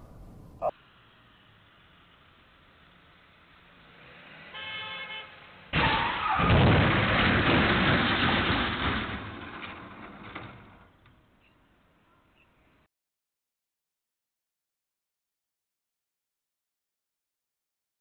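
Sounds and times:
vehicle horn toot: 4.5s - 6.2s
plastic trash bins crashing: 5.8s - 11.0s.

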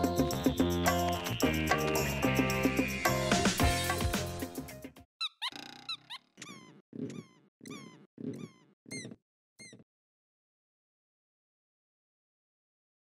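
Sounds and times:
background music: 0.0s - 5.0s
cartoon squeaks with soft thumps: 5.2s - 9.9s.

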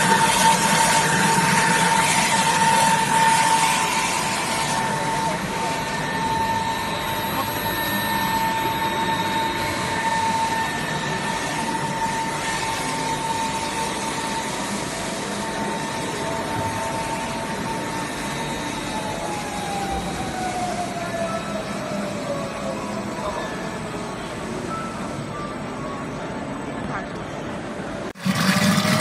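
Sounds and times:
electric motor whine: 0.0s - 23.0s
machine hum: 0.0s - 23.1s, 27.8s - 29.0s.

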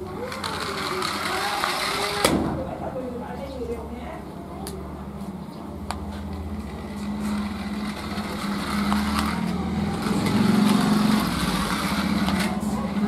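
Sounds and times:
toy car motor whirring: 0.0s - 2.3s, 6.3s - 13.0s.

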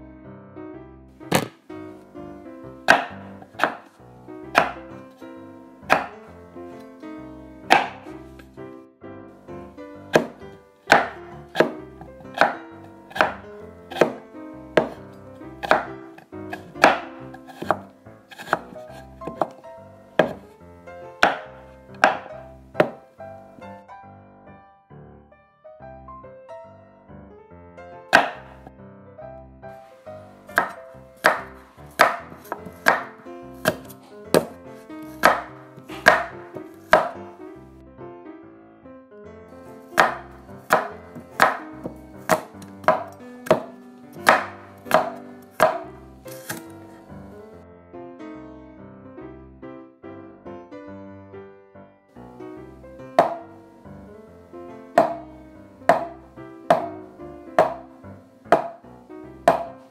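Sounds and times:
soft piano music: 0.0s - 59.9s
knife chopping on cutting board: 1.3s - 1.6s, 2.9s - 3.9s, 4.6s - 4.8s, 5.9s - 6.2s, 7.7s - 8.1s, 10.1s - 14.2s, 14.8s - 15.0s, 15.6s - 19.6s, 20.2s - 20.5s, 21.2s - 23.0s, 28.2s - 28.5s, 30.5s - 37.2s, 40.0s - 46.7s, 53.2s - 53.5s, 55.0s - 55.2s, 55.9s - 56.9s, 57.6s - 57.8s, 58.5s - 58.8s, 59.5s - 59.8s.

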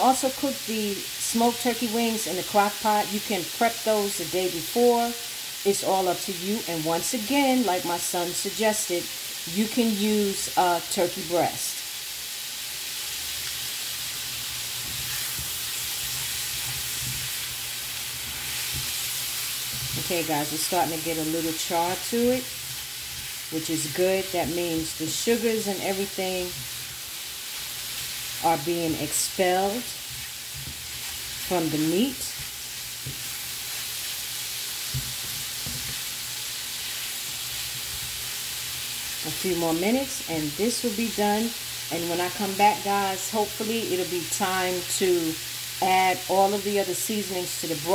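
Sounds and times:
sausage sizzling in a skillet: 0.0s - 47.9s
spatula stirring in a skillet: 11.9s - 39.4s.

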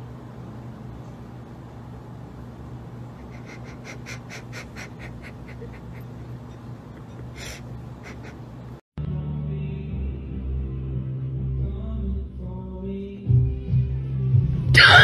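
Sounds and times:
low room hum: 0.0s - 8.8s
soft breathy laughter: 3.1s - 8.7s.

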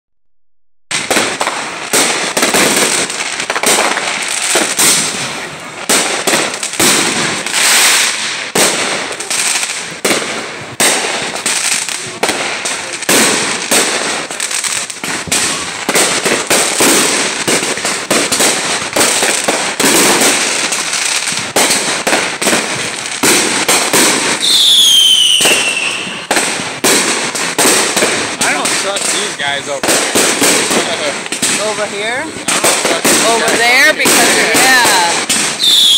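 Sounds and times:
fireworks bangs and crackles: 0.9s - 35.9s
falling firework whistle: 24.0s - 26.4s, 34.7s - 35.9s.

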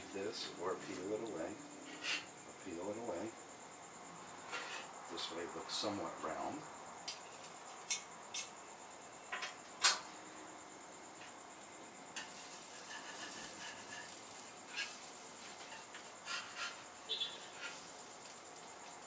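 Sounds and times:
metal spatula tapping griddle: 12.2s - 16.8s.

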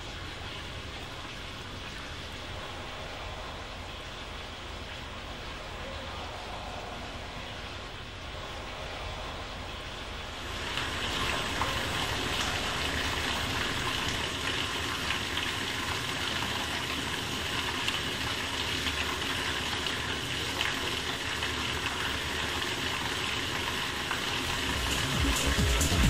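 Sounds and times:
water rushing through drain pipe: 10.3s - 26.0s.

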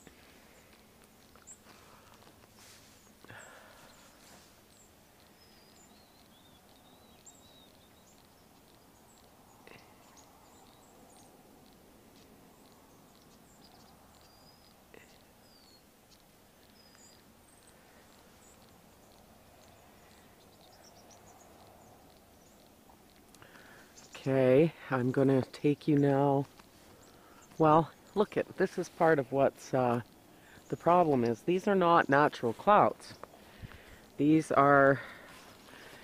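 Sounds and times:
bird chirps and calls: 3.4s - 11.4s, 12.2s - 22.7s.

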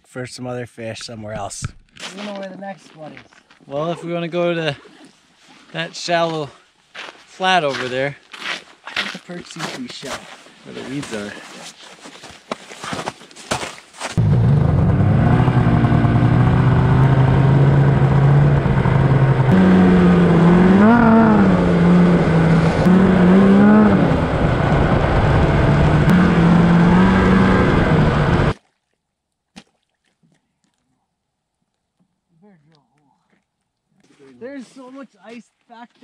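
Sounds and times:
snowmobile engine running: 14.2s - 28.6s.

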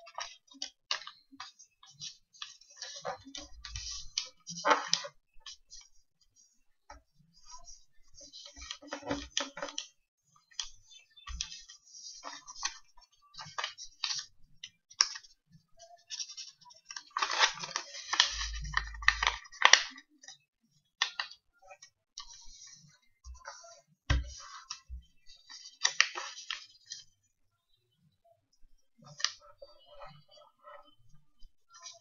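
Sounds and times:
paper rustling and crackling: 0.0s - 6.0s, 7.5s - 9.9s, 10.5s - 15.4s, 16.0s - 20.4s, 21.0s - 27.1s.

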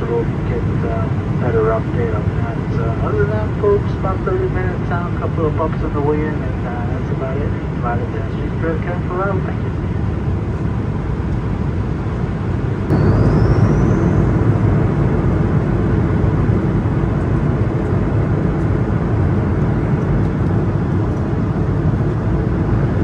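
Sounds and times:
airplane cabin engine noise: 0.0s - 23.0s
short rising whistle: 12.9s - 14.8s.

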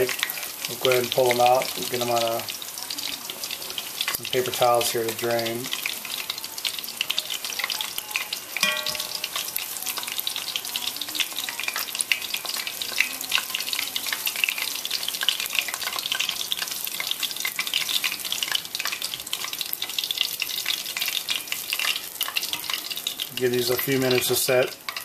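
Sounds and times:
food deep-frying in oil: 0.0s - 25.0s
ringing tone: 8.6s - 9.4s.

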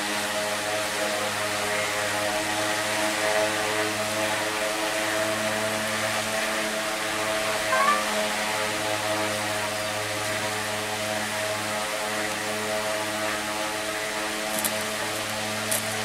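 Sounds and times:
electric fan humming: 5.3s - 16.0s.

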